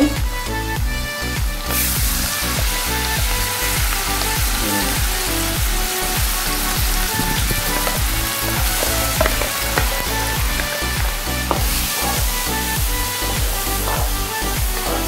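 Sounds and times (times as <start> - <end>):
background music with steady beat: 0.0 - 15.0
vegetables sizzling in hot oil: 1.6 - 15.0
wooden spatula stirring: 7.1 - 14.0.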